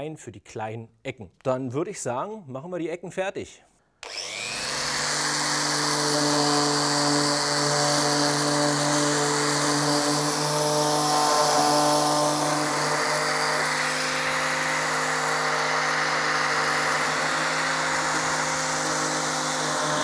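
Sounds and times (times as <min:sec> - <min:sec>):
electric sander on wood: 0:04.0 - 0:20.0.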